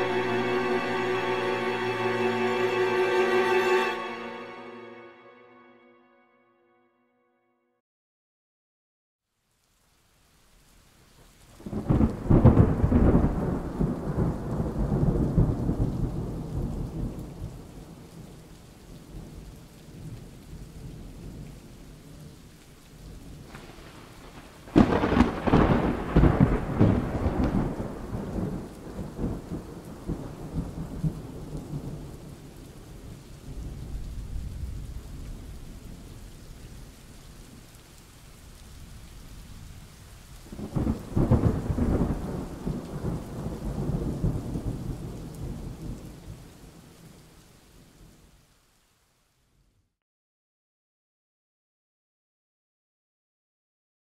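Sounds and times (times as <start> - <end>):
steady rain: 0.0 - 4.9, 9.2 - 50.0
thunder rolling: 11.7 - 17.1, 23.4 - 31.2, 40.6 - 46.0.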